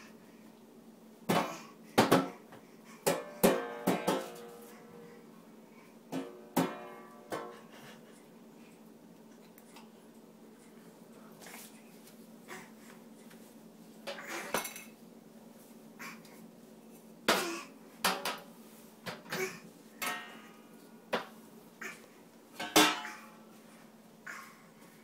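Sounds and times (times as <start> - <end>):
plastic ring knocking metal trash can: 3.1 - 4.4.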